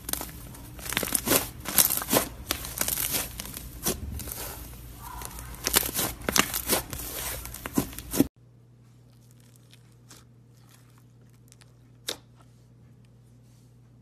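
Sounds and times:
slime squishing with sticky pops: 0.0 - 8.3.

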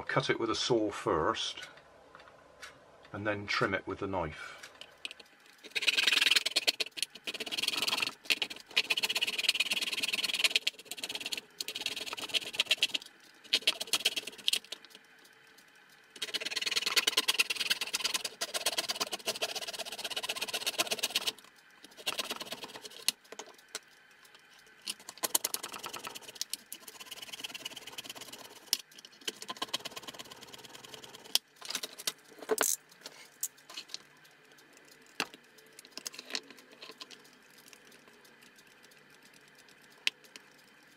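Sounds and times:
scattered clicks and scrapes: 4.5 - 40.9
hand saw rasping through plastic: 16.2 - 21.4.

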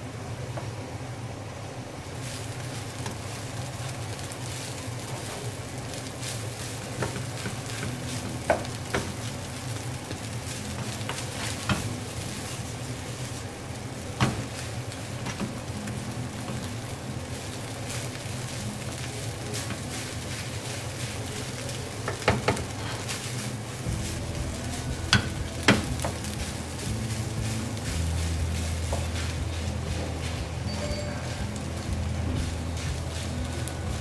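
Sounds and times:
rice sizzling in a pan: 0.0 - 34.0
spatula scraping and tapping pan: 6.0 - 13.3, 14.2 - 34.0.

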